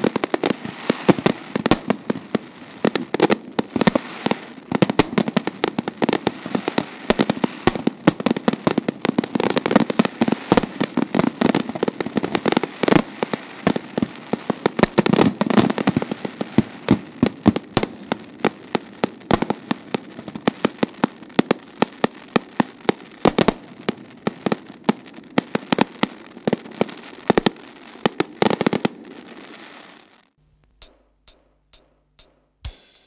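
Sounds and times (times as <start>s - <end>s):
fireworks bangs: 0.0s - 20.7s
fireworks crackle: 0.0s - 31.4s
short high ticks: 30.4s - 33.0s.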